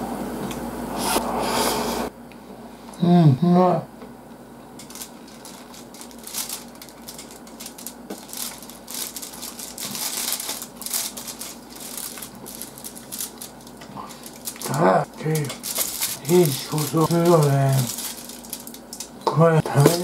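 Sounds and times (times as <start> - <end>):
crisp fried food crunching: 4.8 - 19.2.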